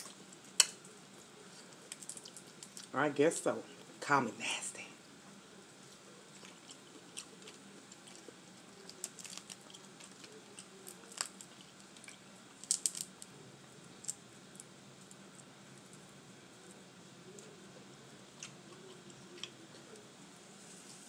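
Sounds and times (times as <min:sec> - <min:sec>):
eating sounds: 0:01.5 - 0:03.0, 0:05.8 - 0:15.9, 0:17.2 - 0:20.1
crawfish shells cracking: 0:01.6 - 0:02.9, 0:06.3 - 0:15.5.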